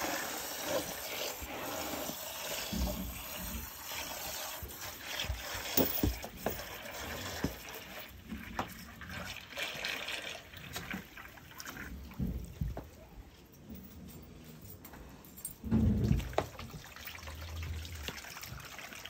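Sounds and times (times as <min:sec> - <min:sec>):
water splashing into a bucket: 0:02.1 - 0:12.2, 0:16.0 - 0:19.0
knocks and thumps: 0:05.7 - 0:06.7.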